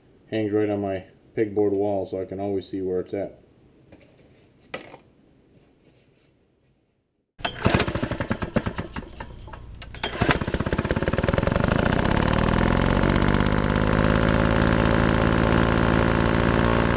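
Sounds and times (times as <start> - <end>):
engine sputtering and revving: 10.2 - 16.9.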